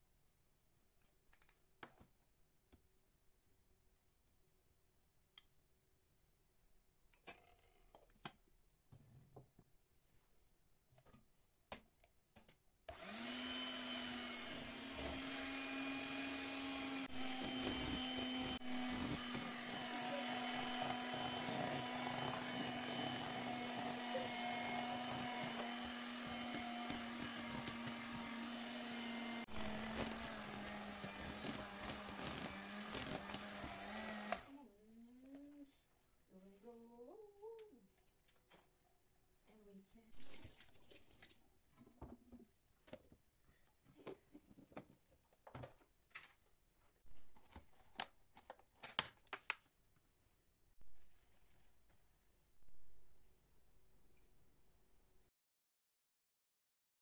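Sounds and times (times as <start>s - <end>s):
electric mixer whining: 12.9s - 34.5s.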